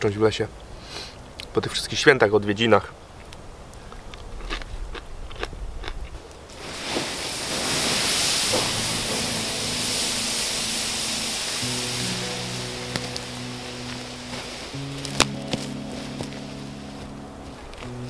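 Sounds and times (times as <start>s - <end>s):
water hissing on embers: 6.5s - 17.8s
faint music: 7.6s - 18.0s.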